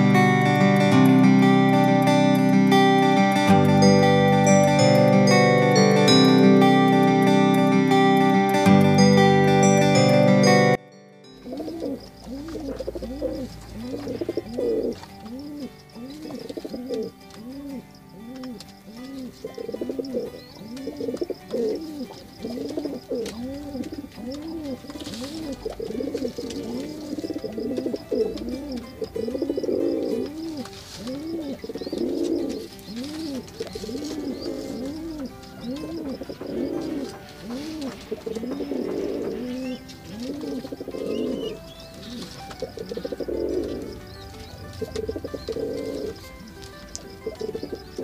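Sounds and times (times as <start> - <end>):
pigeons cooing: 11.4 - 48.0.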